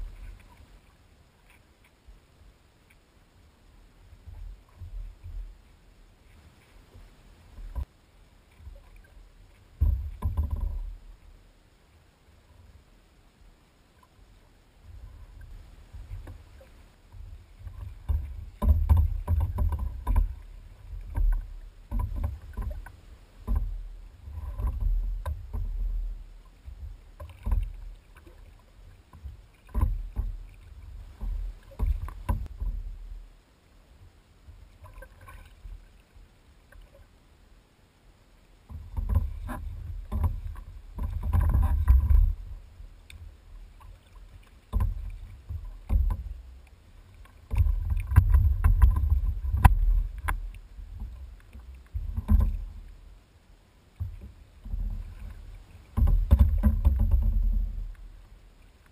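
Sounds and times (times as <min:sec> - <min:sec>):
water slapping against kayak hull: 0:16.0 - 0:26.0, 0:26.7 - 0:32.8, 0:38.7 - 0:53.0, 0:54.0 - 0:58.9.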